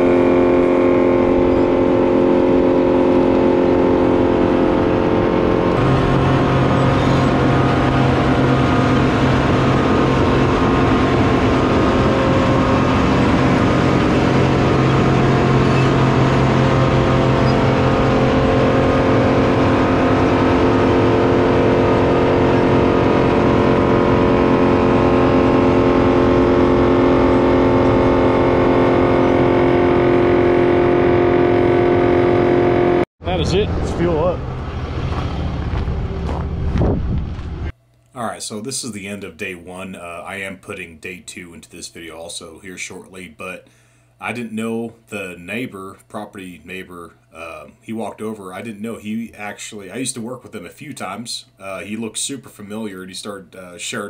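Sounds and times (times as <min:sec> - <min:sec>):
wood chipper engine running: 0:00.0 - 0:37.7, 0:43.7 - 0:44.1.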